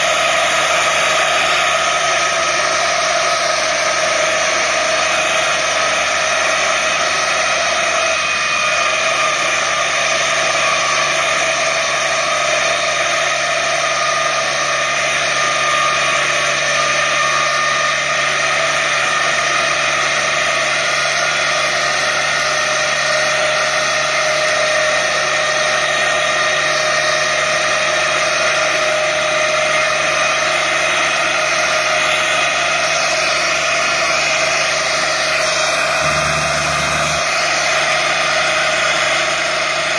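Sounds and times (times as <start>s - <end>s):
tractor and mower running: 0.0s - 39.9s.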